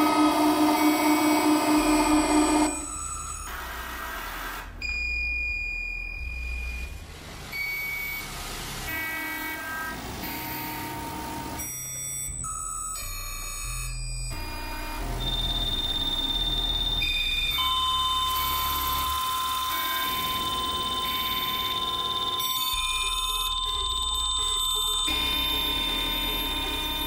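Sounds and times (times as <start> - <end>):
electronic beeps: 0.0 - 4.0, 15.0 - 27.0
pulsing synth chord: 0.0 - 4.5, 14.4 - 27.0
sustained pure tones: 0.0 - 4.5, 14.3 - 27.0
stuttering glitch pattern: 18.4 - 27.0.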